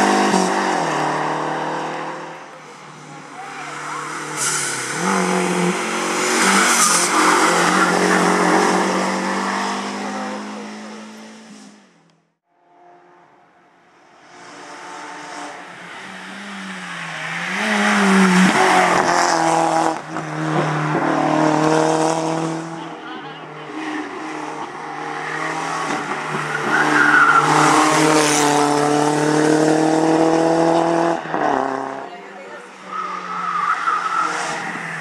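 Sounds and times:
race car passing: 0:14.3 - 0:35.0
race car engine revving: 0:14.5 - 0:32.1.

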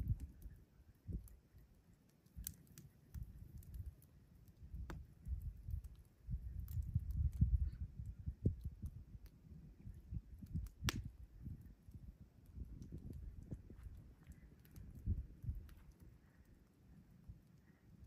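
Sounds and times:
wind buffeting microphone: 0:00.0 - 0:01.4, 0:04.6 - 0:16.1
campfire crackling: 0:00.0 - 0:18.0.

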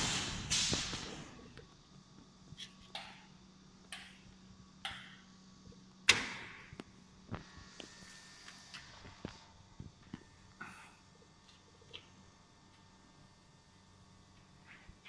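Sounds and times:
brief hissing puffs: 0:00.0 - 0:01.2
faint steady hum: 0:00.0 - 0:15.0.

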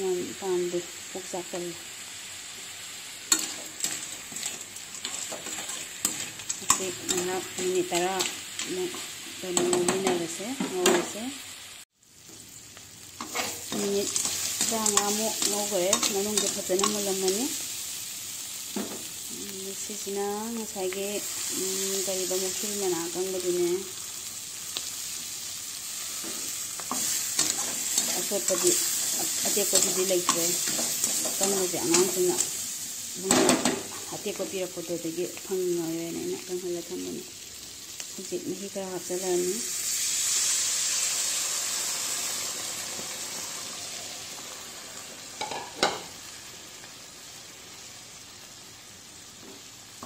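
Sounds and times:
food sizzling in a wok: 0:00.0 - 0:50.0
metal spatula scraping wok: 0:03.2 - 0:11.1, 0:13.2 - 0:17.4, 0:26.0 - 0:32.6.

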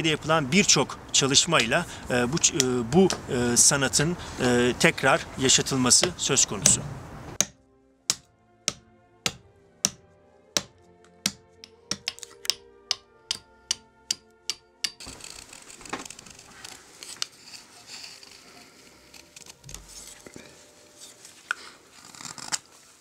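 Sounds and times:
axe chopping wood: 0:06.0 - 0:06.8, 0:07.4 - 0:10.0, 0:10.6 - 0:15.0.

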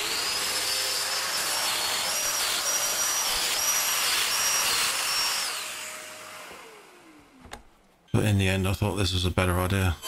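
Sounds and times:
dust extractor running: 0:00.0 - 0:07.6.

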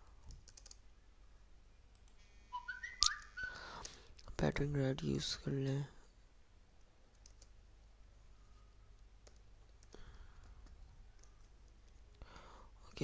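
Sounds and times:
keyboard and mouse clicks: 0:00.2 - 0:00.8, 0:03.0 - 0:04.3, 0:07.1 - 0:07.6, 0:09.2 - 0:12.0.

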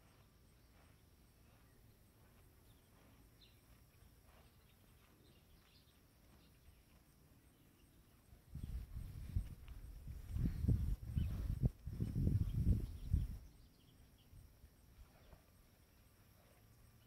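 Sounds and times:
faint high chirps: 0:00.0 - 0:17.0.

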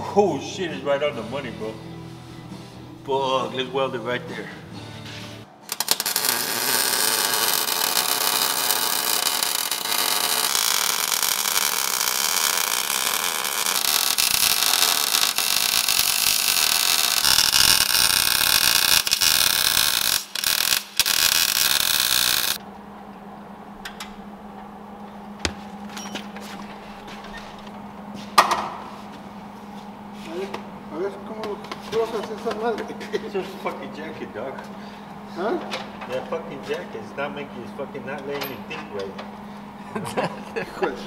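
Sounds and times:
arc welding crackling sizzle: 0:05.7 - 0:22.6.

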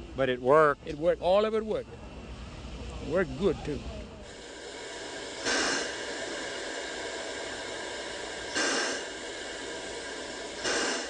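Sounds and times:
steam locomotive hissing: 0:00.0 - 0:11.0.

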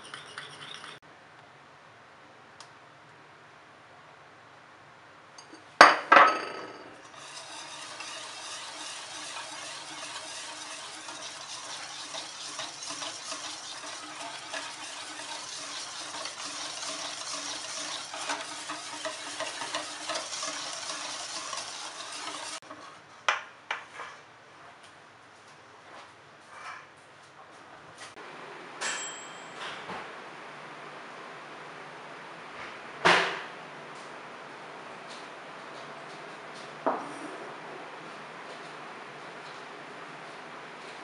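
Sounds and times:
whisk beating batter in metal bowl: 0:00.0 - 0:01.0, 0:07.0 - 0:23.0.

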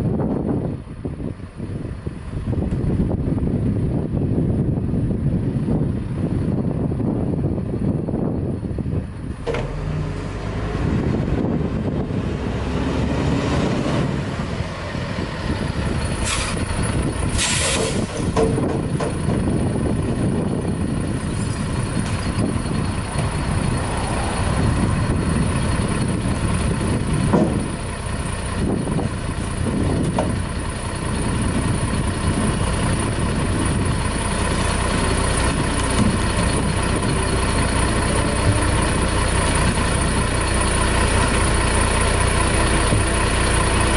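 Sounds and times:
garbage truck diesel engine: 0:00.0 - 0:43.9
air hiss: 0:17.4 - 0:18.0.

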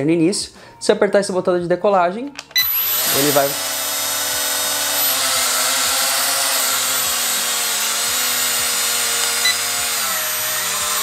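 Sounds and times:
drone motors buzzing whine: 0:02.6 - 0:11.0.

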